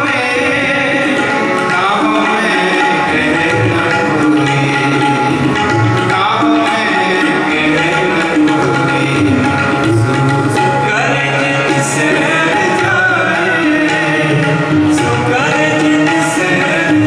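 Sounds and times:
tabla playing: 0:00.0 - 0:17.0.

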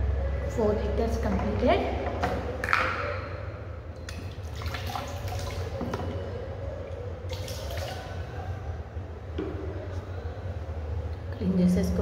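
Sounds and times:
water pouring and dripping: 0:04.0 - 0:06.2, 0:06.8 - 0:08.2.

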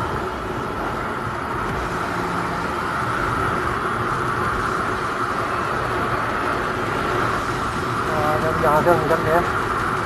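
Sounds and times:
wind and road noise: 0:00.0 - 0:10.0.

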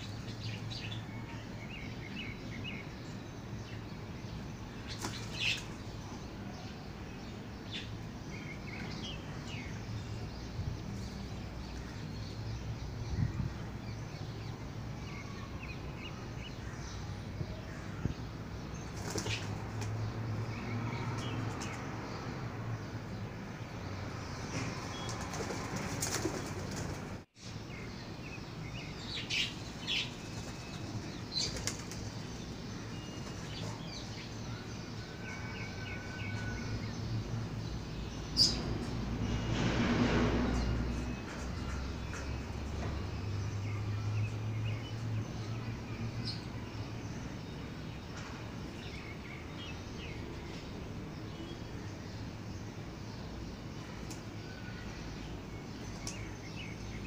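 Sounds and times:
birds chirping: 0:00.0 - 0:57.0
wings flapping: 0:18.9 - 0:19.9, 0:25.0 - 0:27.2, 0:30.3 - 0:32.1.

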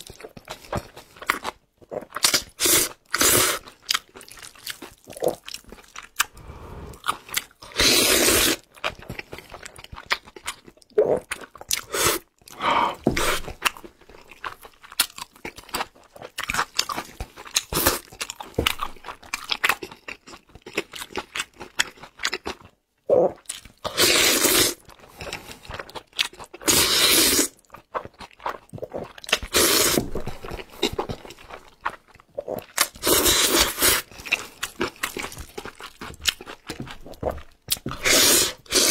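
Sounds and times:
wet chewing: 0:00.0 - 0:22.8, 0:23.4 - 0:38.9
slurping noodles: 0:07.7 - 0:08.6, 0:23.9 - 0:24.8, 0:26.6 - 0:27.6, 0:28.9 - 0:30.3, 0:32.9 - 0:34.1, 0:38.0 - 0:38.9.

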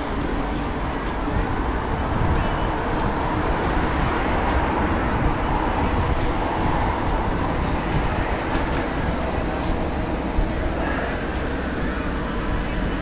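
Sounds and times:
bicycle road noise rumble: 0:00.0 - 0:13.0
wind rush on microphone: 0:00.0 - 0:13.0.

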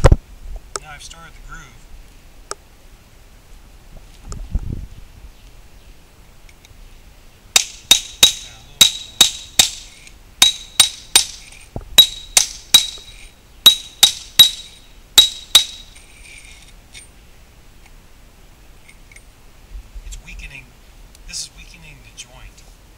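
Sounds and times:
hammer striking chisel: 0:07.6 - 0:11.4, 0:12.0 - 0:13.1, 0:13.7 - 0:15.9.

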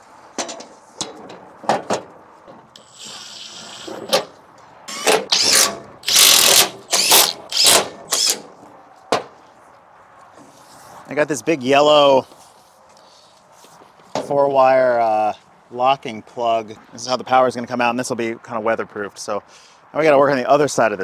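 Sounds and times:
impact driver driving screws: 0:02.8 - 0:04.3, 0:04.9 - 0:08.4.

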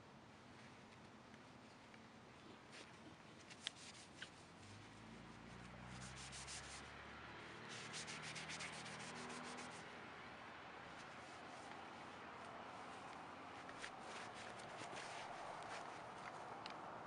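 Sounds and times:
scratchy rubbing: 0:02.7 - 0:04.8, 0:05.5 - 0:06.9, 0:07.7 - 0:09.8, 0:13.6 - 0:16.2.

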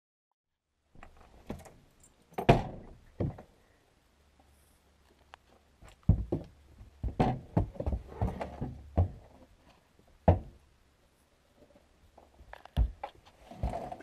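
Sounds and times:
horse hooves on wooden boards: 0:05.8 - 0:09.5, 0:10.2 - 0:10.6, 0:12.6 - 0:14.0.

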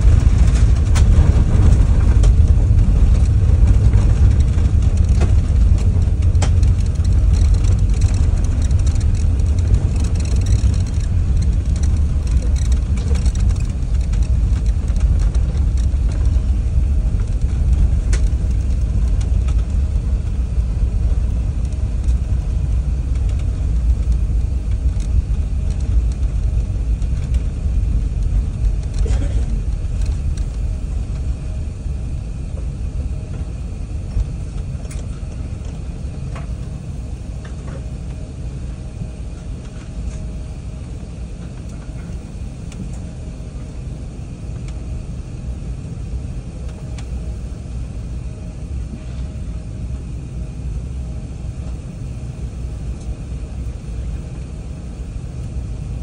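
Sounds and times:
aircraft cabin rumble: 0:00.0 - 0:56.0.

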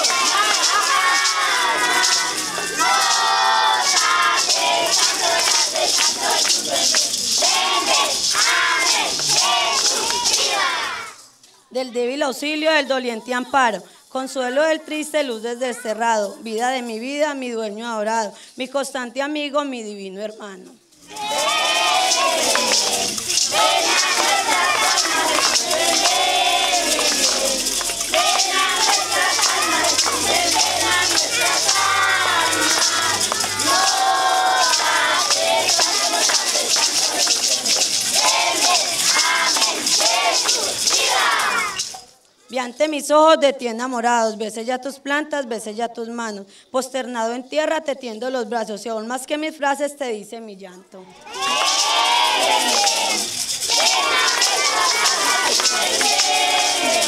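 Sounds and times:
crowd singing together: 0:00.0 - 0:11.2, 0:21.0 - 0:42.0, 0:51.3 - 0:57.0
maracas shaken: 0:00.0 - 0:20.0, 0:20.6 - 0:49.4, 0:51.1 - 0:57.0.

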